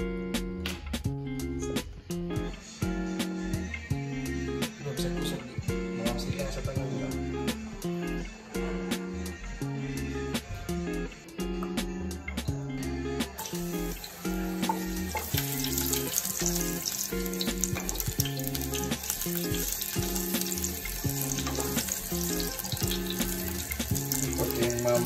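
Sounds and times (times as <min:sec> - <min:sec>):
background music: 0:00.0 - 0:25.0
garlic sizzling in hot oil: 0:13.4 - 0:25.0.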